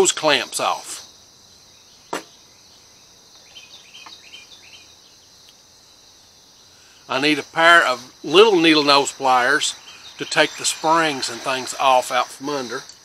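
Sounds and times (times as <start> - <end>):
high insect chorus: 0.0 - 13.0.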